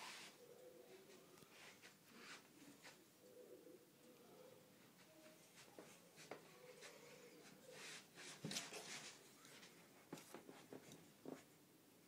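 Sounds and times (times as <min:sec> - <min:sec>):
hissing rustle: 0:00.0 - 0:04.2, 0:04.8 - 0:09.8
faint rustling: 0:00.0 - 0:11.7.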